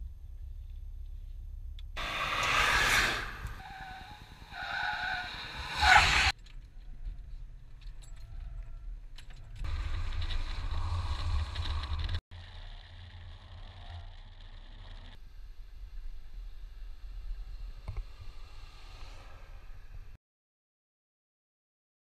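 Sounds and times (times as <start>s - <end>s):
tyres squealing: 2.0s - 6.3s
car driving: 2.0s - 6.4s, 9.5s - 20.2s
loud engine and road noise: 2.0s - 6.4s, 9.6s - 20.2s.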